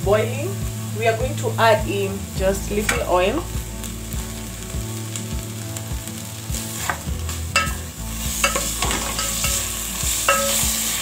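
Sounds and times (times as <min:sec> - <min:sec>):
meat sizzling in a pot: 0:00.0 - 0:11.0.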